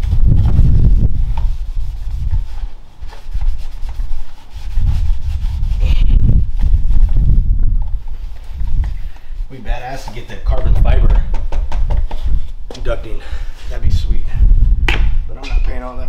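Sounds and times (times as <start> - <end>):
rag wiping car body: 0.0 - 10.6.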